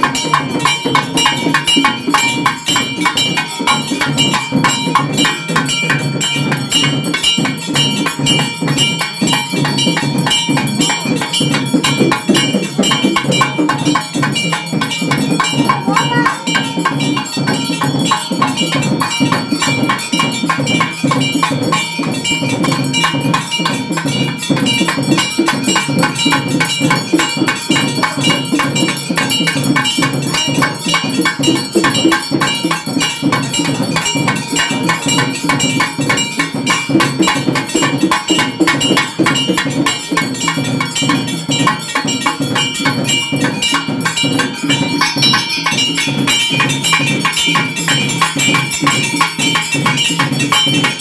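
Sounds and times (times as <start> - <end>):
drumming: 0.0 - 51.0
metal temple bells ringing: 0.0 - 51.0.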